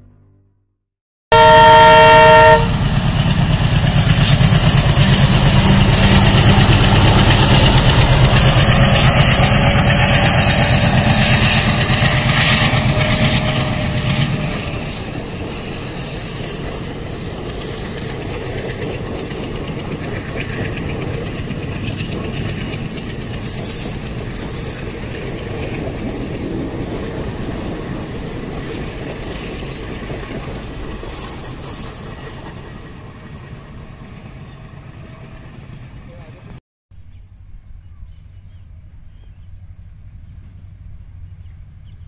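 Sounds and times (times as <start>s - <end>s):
locomotive horn blast: 1.3s - 2.9s
locomotive engine throbbing: 1.4s - 31.0s
train coaches clickety-clack: 2.0s - 36.6s.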